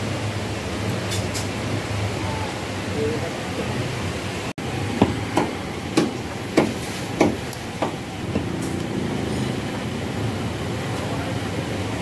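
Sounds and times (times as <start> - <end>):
steady background noise: 0.0 - 12.0
cleaver chopping on wood: 5.0 - 8.5.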